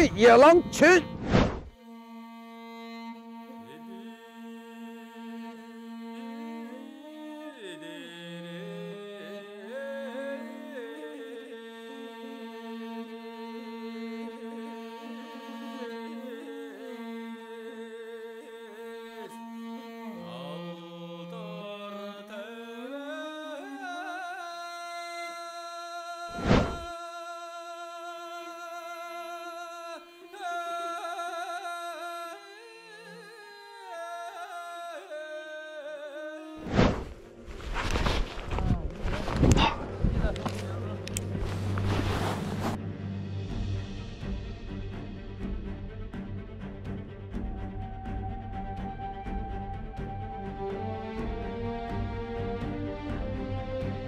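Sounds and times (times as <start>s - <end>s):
loud thump: 1.2s - 1.7s
slow gliding melody: 37.2s - 43.8s.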